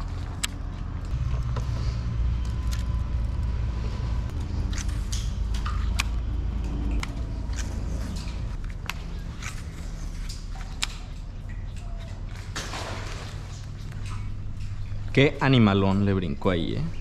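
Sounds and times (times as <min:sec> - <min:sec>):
traffic rumble on bridge: 0:00.0 - 0:10.6.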